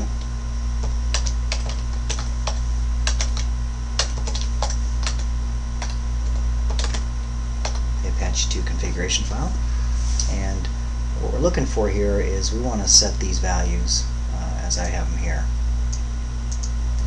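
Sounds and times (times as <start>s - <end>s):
steady low hum: 0.0s - 17.0s
keyboard typing clicks: 1.2s - 5.2s, 5.8s - 7.0s, 15.9s - 16.7s.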